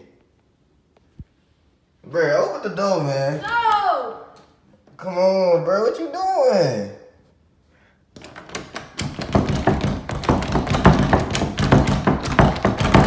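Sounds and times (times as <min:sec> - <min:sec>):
rapid knocking on wooden door: 0:08.2 - 0:13.0.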